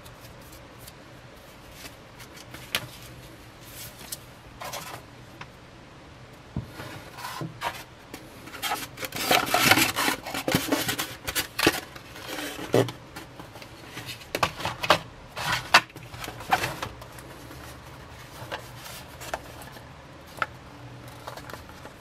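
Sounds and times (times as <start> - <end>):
packaging clicks and rustles: 8.4 - 22.0.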